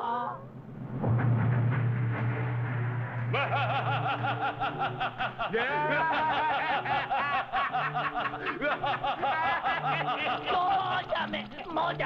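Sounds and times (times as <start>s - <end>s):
cartoon voice laughing: 5.4s - 11.3s.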